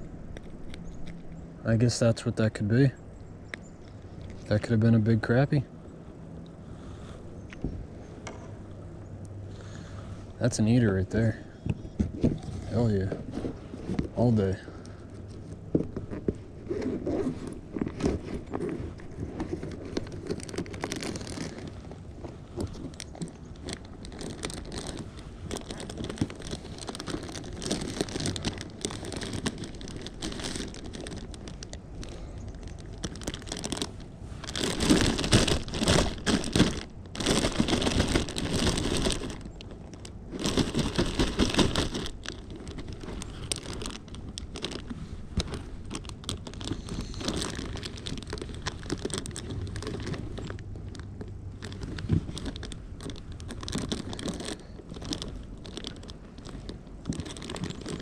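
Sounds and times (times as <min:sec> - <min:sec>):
plastic bag crinkling: 0:12.4 - 0:58.0.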